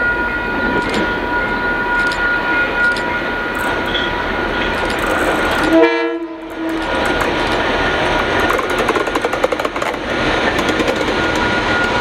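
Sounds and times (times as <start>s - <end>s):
diesel locomotive running: 0.0s - 12.0s
train horn blast: 5.6s - 7.1s.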